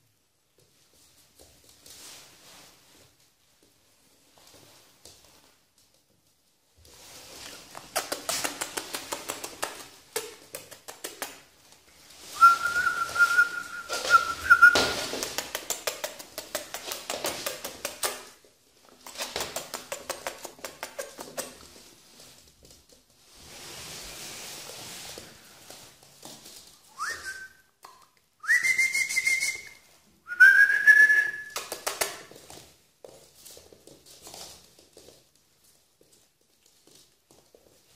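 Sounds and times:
dog claws scrabbling on floor: 6.8s - 27.2s, 31.0s - 37.9s.

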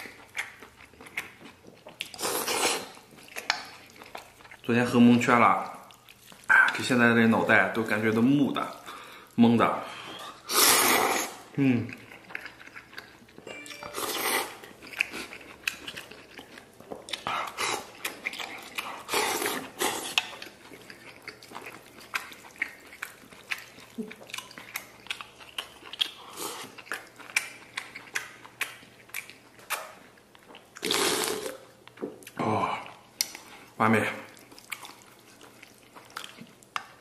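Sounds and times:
wet chewing and lip-smacking: 0.0s - 4.7s, 5.6s - 7.0s, 11.2s - 37.0s
person slurping noodles: 2.2s - 3.0s, 10.4s - 11.5s, 19.1s - 20.2s, 30.8s - 31.6s.

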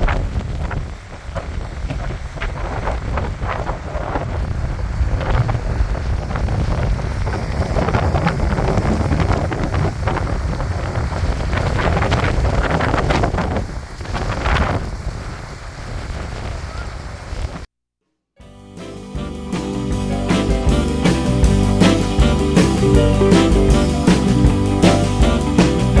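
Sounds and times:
strong wind buffeting microphone: 0.0s - 17.7s.

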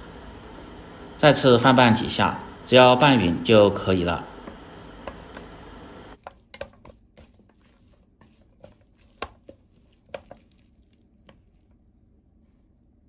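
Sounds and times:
chopsticks tapping a metal bowl: 4.3s - 5.6s, 6.2s - 7.6s, 8.2s - 10.5s.

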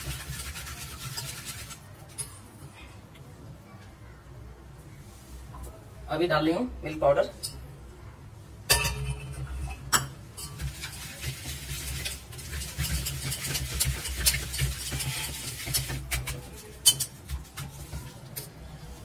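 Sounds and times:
whisk clinking against bowl: 0.0s - 1.8s, 8.7s - 18.5s
whisk scraping in steel bowl: 0.0s - 1.9s, 9.0s - 19.0s.

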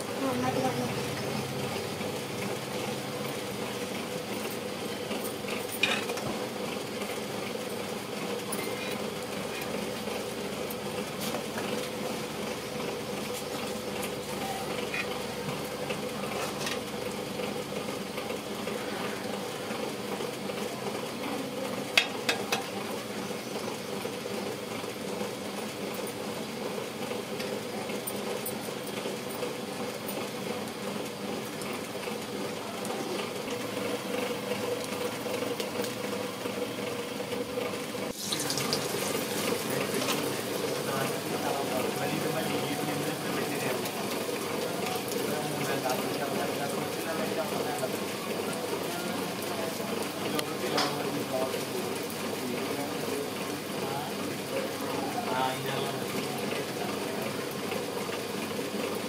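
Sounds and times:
food sizzling in hot oil: 37.8s - 52.3s.

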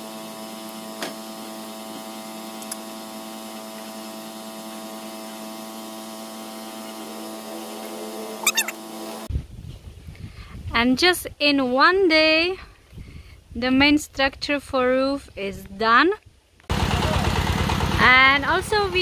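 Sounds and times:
high chirps: 8.4s - 8.8s.

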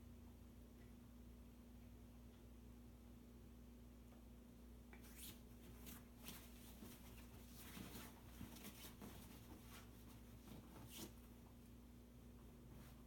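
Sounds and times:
comforter rustling: 5.0s - 11.7s, 12.6s - 13.0s.

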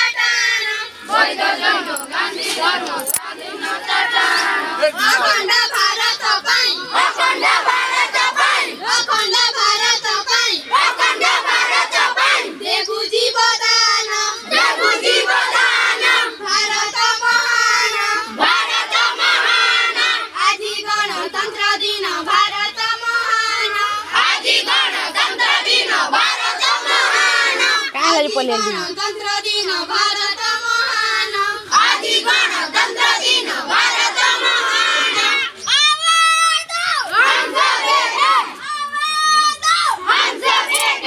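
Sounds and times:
children shouting in unison: 31.8s - 41.0s.

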